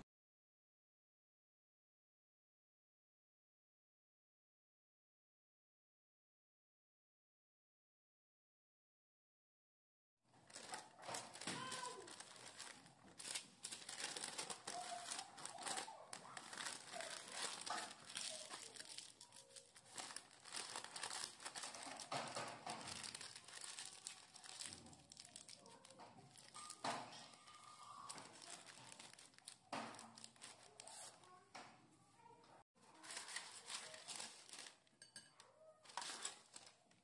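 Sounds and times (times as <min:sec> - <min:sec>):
parchment paper crinkling: 0:10.3 - 0:31.5, 0:32.8 - 0:37.0.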